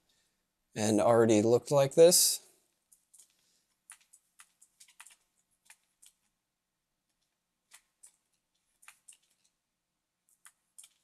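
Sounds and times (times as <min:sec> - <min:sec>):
computer mouse clicks: 0:02.9 - 0:06.3, 0:07.2 - 0:09.6, 0:10.3 - 0:11.0.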